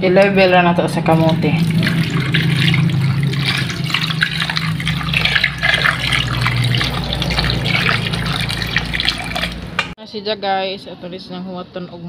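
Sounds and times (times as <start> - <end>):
water pouring into a pot: 1.1 - 10.0.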